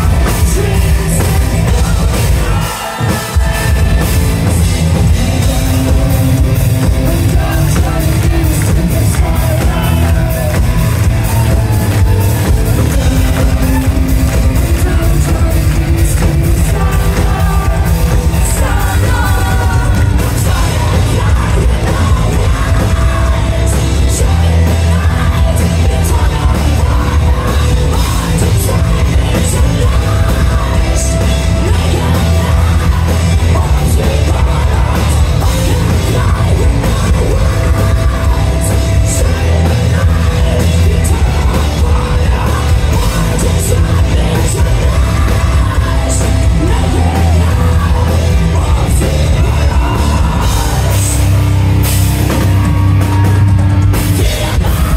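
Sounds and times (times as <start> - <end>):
drums: 0.0 - 54.9
heavy metal band playing live: 0.0 - 54.9
woman singing: 12.7 - 51.1.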